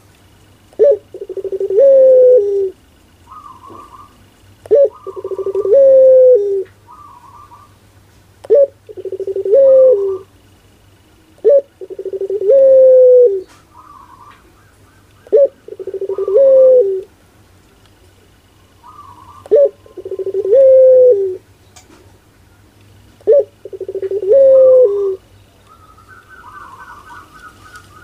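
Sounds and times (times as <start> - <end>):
dove cooing: 0.7 - 7.8, 8.4 - 10.4, 11.4 - 17.1, 18.6 - 21.5, 23.2 - 28.0
higher short bird calls: 0.8 - 7.8, 18.6 - 21.4.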